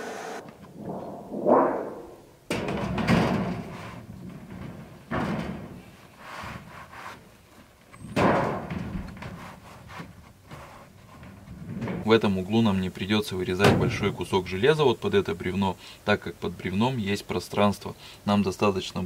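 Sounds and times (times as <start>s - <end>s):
steel sheet scraping and clattering: 0.5s - 6.6s.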